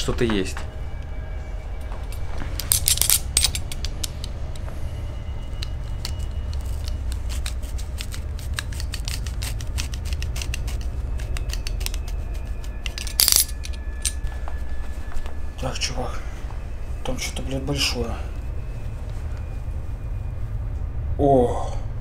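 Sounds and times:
scissors snipping: 0:05.6 - 0:13.7.

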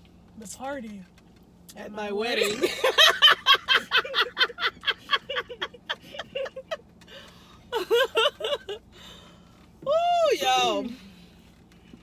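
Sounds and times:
woman laughing: 0:02.4 - 0:06.8, 0:07.7 - 0:08.8.

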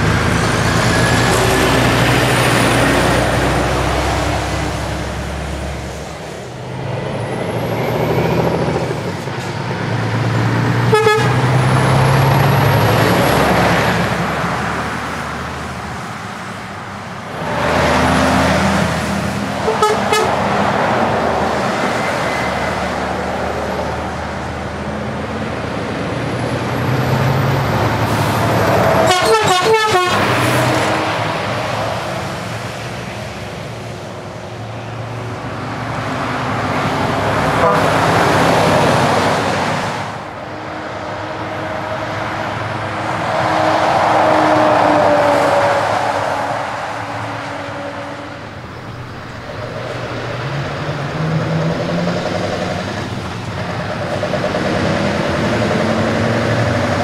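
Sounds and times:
diesel trucks passing: 0:00.0 - 0:57.0
truck horn toots: 0:10.8 - 0:11.6, 0:19.6 - 0:20.4, 0:28.8 - 0:30.7, 0:37.5 - 0:38.3.

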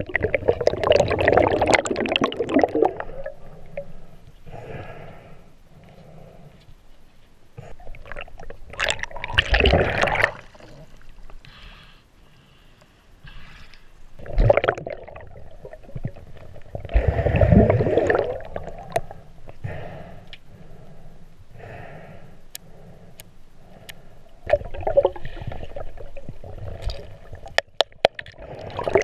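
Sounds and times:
water gurgling and sloshing: 0:00.0 - 0:06.5, 0:07.6 - 0:11.4, 0:13.2 - 0:19.6, 0:23.7 - 0:29.0.

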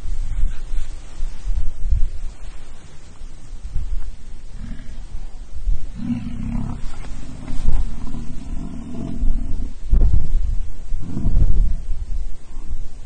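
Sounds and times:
low rumbling: 0:00.0 - 0:13.0
bison bellowing: 0:04.5 - 0:09.9.

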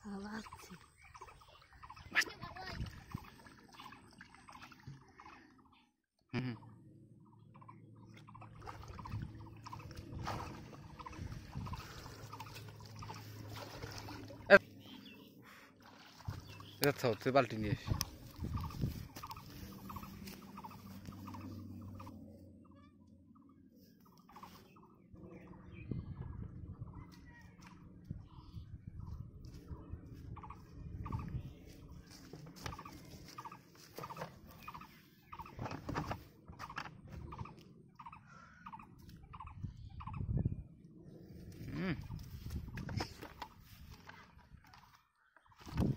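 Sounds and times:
animal pulsing call: 0:06.3 - 0:13.6, 0:18.0 - 0:23.5, 0:36.6 - 0:40.4
shallow water splashing: 0:08.2 - 0:14.7, 0:15.5 - 0:20.0.

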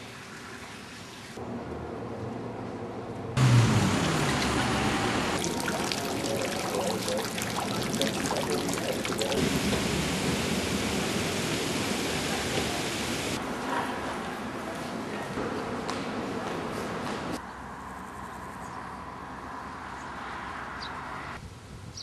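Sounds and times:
fountain water splashing on stone: 0:03.7 - 0:13.4.

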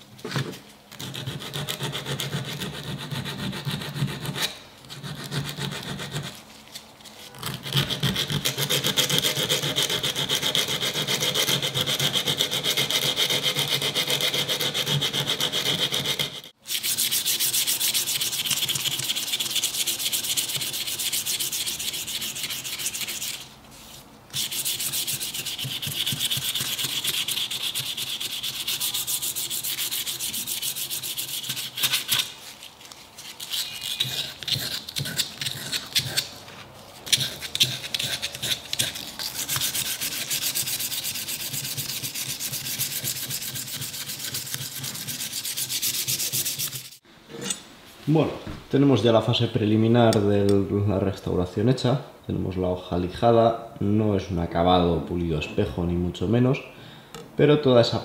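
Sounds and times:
hand sanding metal: 0:01.0 - 0:06.4, 0:07.5 - 0:32.6, 0:37.0 - 0:47.0.

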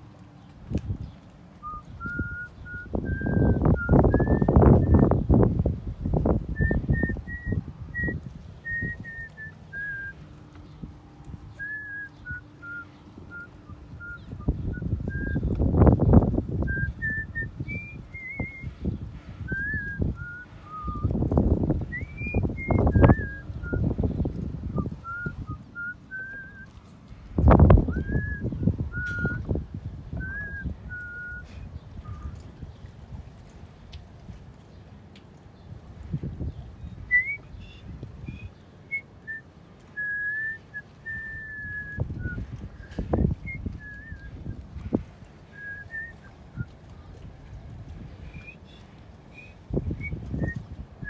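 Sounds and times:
wind buffeting the microphone: 0:00.0 - 0:51.0
person whistling a tune: 0:01.6 - 0:05.1, 0:06.6 - 0:10.2, 0:11.5 - 0:15.5, 0:16.7 - 0:18.8, 0:19.5 - 0:21.1, 0:21.9 - 0:23.9, 0:24.8 - 0:26.7, 0:27.9 - 0:29.5, 0:30.2 - 0:32.3, 0:37.1 - 0:39.4, 0:40.0 - 0:44.5, 0:45.5 - 0:46.7, 0:48.3 - 0:50.7.

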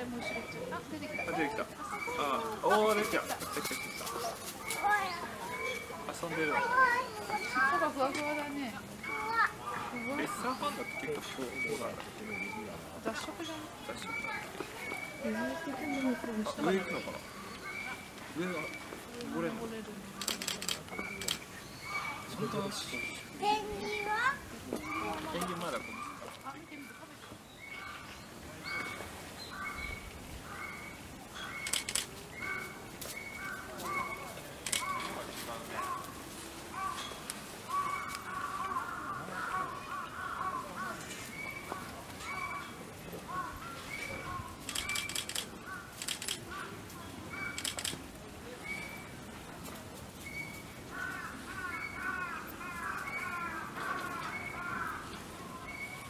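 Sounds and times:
sharp clicks: 0:20.2 - 0:21.4, 0:31.6 - 0:32.2, 0:34.6 - 0:35.1, 0:44.6 - 0:46.5, 0:47.4 - 0:48.0
crow cawing: 0:35.8 - 0:41.1, 0:50.9 - 0:55.8.

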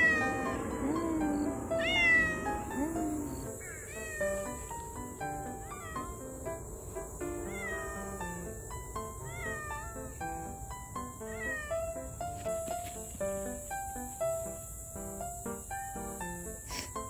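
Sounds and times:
cat meowing: 0:00.0 - 0:12.5
background music: 0:00.0 - 0:17.0.

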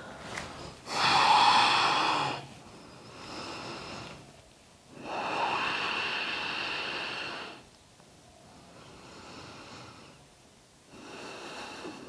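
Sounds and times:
person breathing slowly: 0:00.0 - 0:04.3, 0:04.9 - 0:07.7, 0:10.9 - 0:12.0.

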